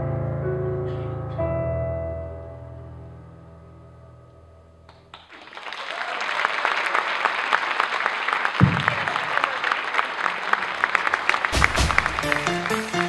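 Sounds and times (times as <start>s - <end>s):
sustained piano notes: 0.0s - 4.9s
audience applause: 5.1s - 13.0s.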